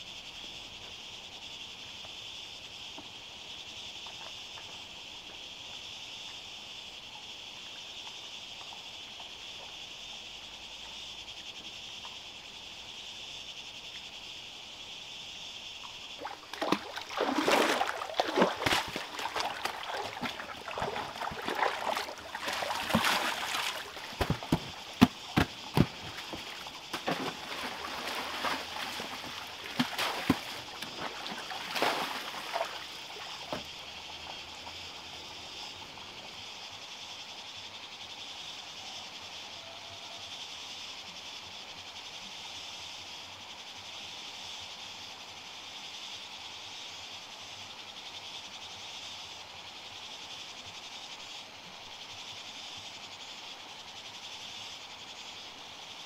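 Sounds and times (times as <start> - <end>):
outdoor background hiss: 0.0 - 56.0
water splashing: 16.2 - 33.7.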